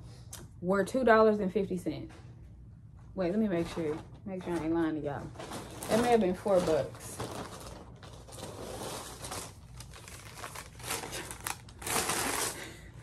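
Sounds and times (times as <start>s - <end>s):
paper receipt rustling: 3.6s - 12.8s.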